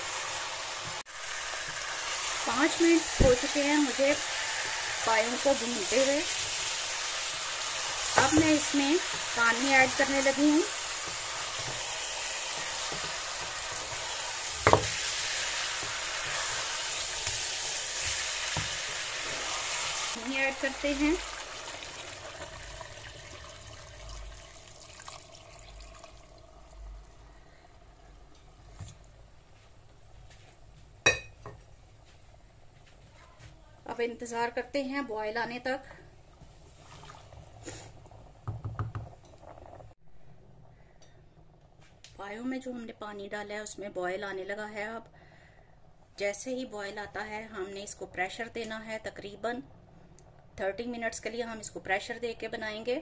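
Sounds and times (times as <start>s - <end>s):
meat sizzling in a pot: 0.0s - 29.0s, 36.4s - 40.0s
spoon knocking on pot: 31.1s - 31.6s.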